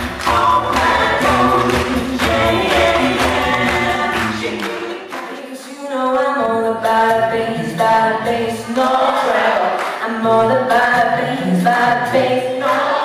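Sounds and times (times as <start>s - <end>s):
sung bass line: 0.0s - 4.6s
a cappella group singing in harmony: 0.0s - 13.0s.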